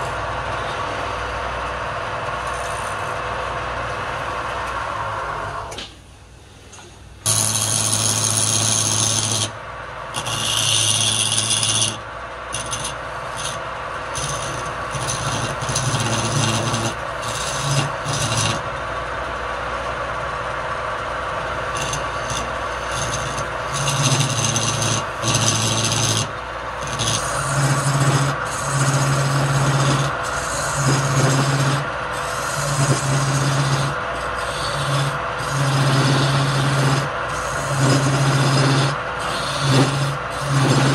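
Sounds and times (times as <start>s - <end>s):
lathe humming: 0.0s - 5.7s, 7.3s - 40.9s
scraper cutting spinning wood: 7.3s - 18.9s, 21.4s - 40.9s.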